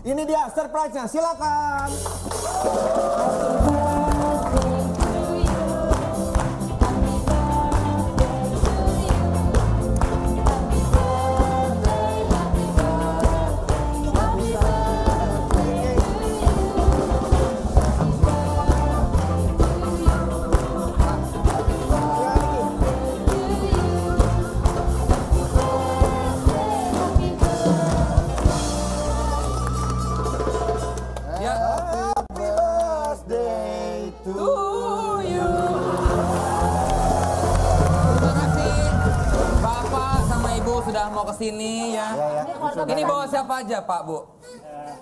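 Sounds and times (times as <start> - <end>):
person singing: 2.5 - 41.0
band playing with brass horn: 3.1 - 31.2, 35.5 - 41.0.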